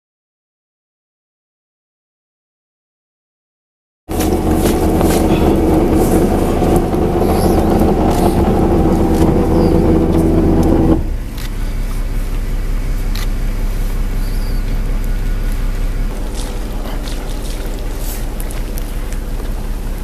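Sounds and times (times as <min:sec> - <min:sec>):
boat engine running: 0:04.1 - 0:20.0.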